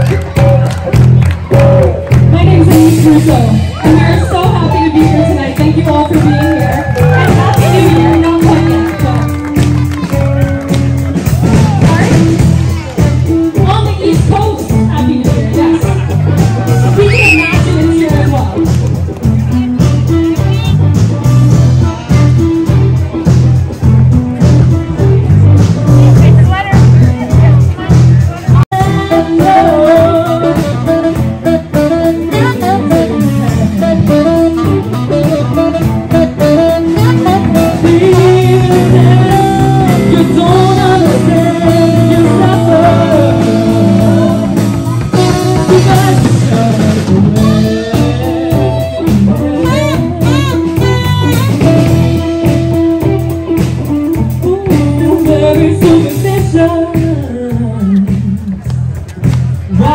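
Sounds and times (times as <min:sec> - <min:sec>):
saxophone: 0:00.0 - 0:58.7
drum kit: 0:00.0 - 0:59.9
electric guitar: 0:00.0 - 0:59.9
woman singing: 0:02.2 - 0:09.4, 0:28.7 - 0:34.5, 0:36.4 - 0:58.6.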